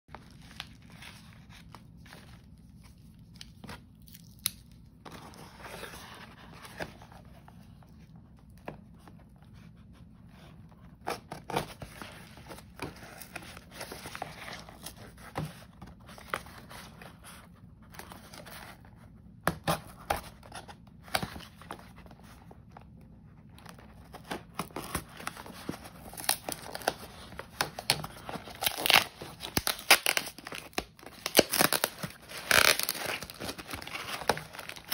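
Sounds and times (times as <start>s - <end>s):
cardboard ripping: 24.2s - 34.9s.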